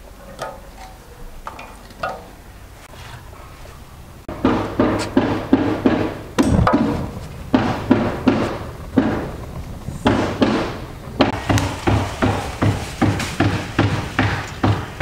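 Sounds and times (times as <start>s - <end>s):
sharp knocks with dull thuds: 4.3s - 15.0s.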